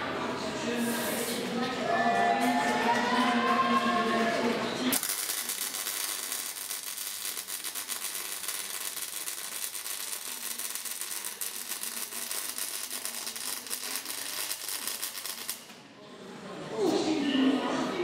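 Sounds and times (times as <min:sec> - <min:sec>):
welding arc crackling sizzle: 0:04.9 - 0:15.8.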